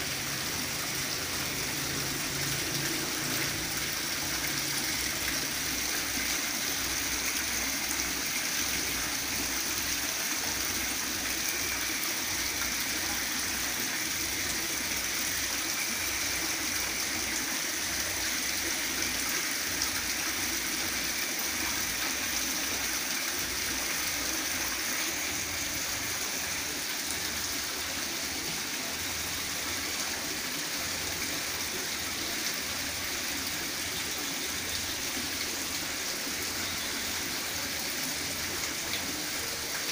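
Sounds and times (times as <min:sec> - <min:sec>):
fountain water splashing into pond: 0:00.0 - 0:39.9.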